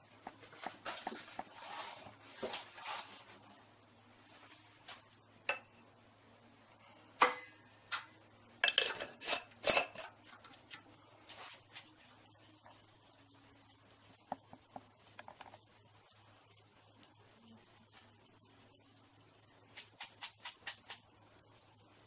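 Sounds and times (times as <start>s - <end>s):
glass jar clinking: 5.5s - 5.8s, 8.6s - 10.1s
powder rustling in jar: 10.3s - 22.0s.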